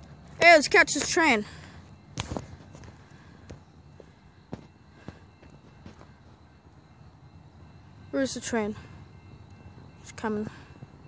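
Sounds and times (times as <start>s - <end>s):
footsteps on dirt trail: 0.2s - 6.5s.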